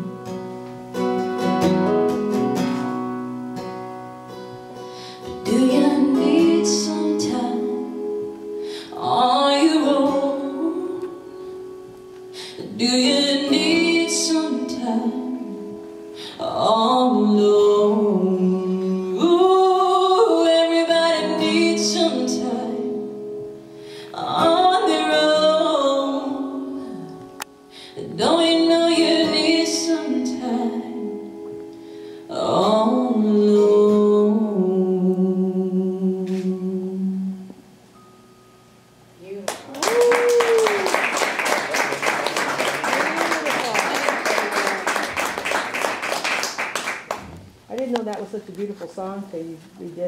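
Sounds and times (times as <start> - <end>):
acoustic guitar: 0.0 - 50.0
woman singing: 5.2 - 11.4, 12.4 - 23.2, 24.1 - 31.4, 32.3 - 37.5.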